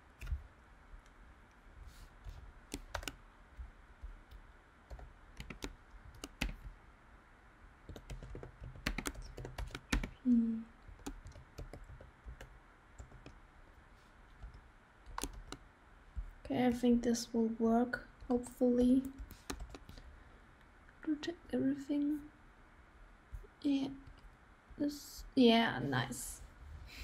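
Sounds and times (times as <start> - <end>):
typing on computer keyboard: 2.7 - 3.2, 4.9 - 6.7, 7.9 - 10.2, 10.8 - 13.4, 14.4 - 15.6, 19.0 - 20.0.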